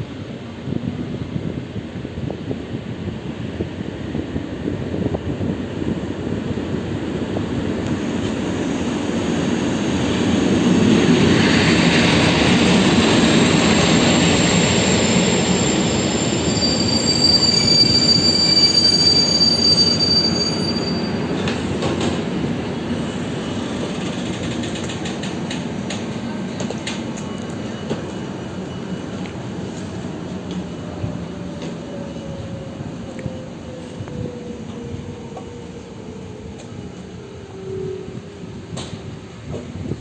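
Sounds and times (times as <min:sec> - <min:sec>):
train wheels rumbling: 0:00.1 - 0:40.0
brakes squealing: 0:13.4 - 0:21.8.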